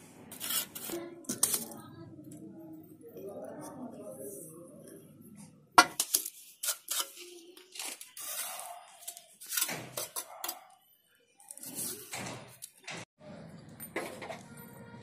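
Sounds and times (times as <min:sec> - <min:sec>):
trowel scraping mortar and bricks: 0:00.2 - 0:01.8, 0:05.8 - 0:10.8, 0:11.4 - 0:12.7.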